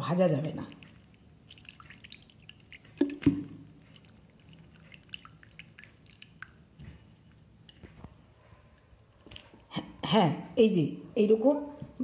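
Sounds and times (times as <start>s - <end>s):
hand squelching wet batter: 0.0s - 9.7s
wet clicks and drips: 0.7s - 9.7s.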